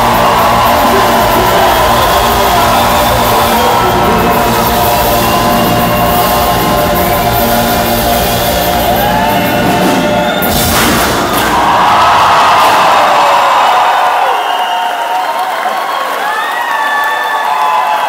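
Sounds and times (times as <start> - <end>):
band and choir playing and singing: 0.0 - 13.6
sudden burst of noise: 0.0 - 14.4
crowd cheering: 0.0 - 18.0.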